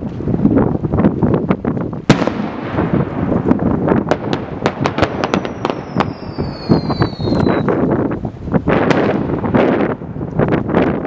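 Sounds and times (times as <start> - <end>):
quick sharp firework pops: 1.7 - 7.8
falling firework whistle: 4.9 - 7.8.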